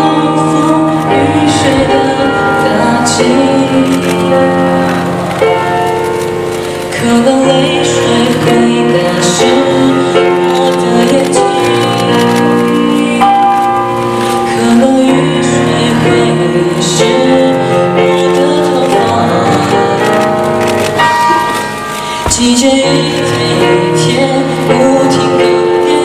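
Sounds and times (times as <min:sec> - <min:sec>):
boy singing: 0:00.0 - 0:05.0, 0:06.9 - 0:13.7, 0:14.5 - 0:20.3, 0:22.2 - 0:26.0
piano chords: 0:00.0 - 0:26.0.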